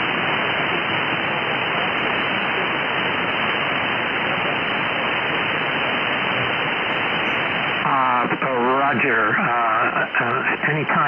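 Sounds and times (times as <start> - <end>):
radio static hiss: 0.0 - 11.0.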